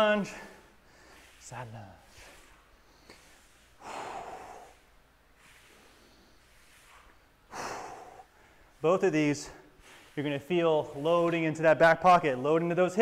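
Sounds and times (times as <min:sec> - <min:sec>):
man breathing out hard: 0:03.1 - 0:05.0, 0:07.5 - 0:08.8.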